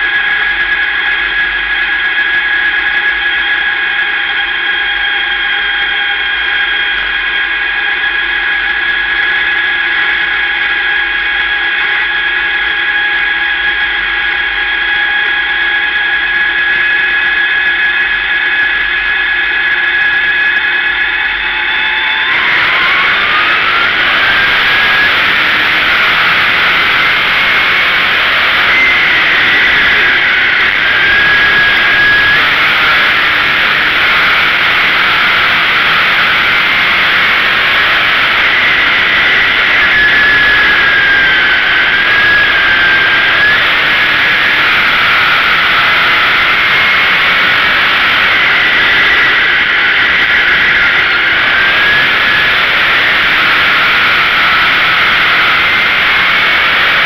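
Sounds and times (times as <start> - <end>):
race car engine whining: 0.0 - 57.0.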